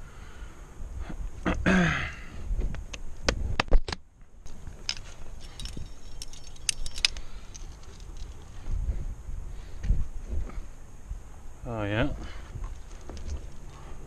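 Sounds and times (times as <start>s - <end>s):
metal climbing gear clinking: 4.4s - 8.7s, 12.6s - 14.0s.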